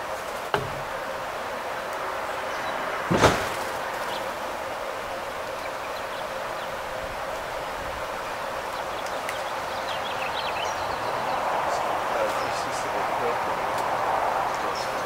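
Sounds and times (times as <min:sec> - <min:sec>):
light breeze hiss: 0:00.0 - 0:15.0
loud thump: 0:00.5 - 0:01.0, 0:03.1 - 0:03.8.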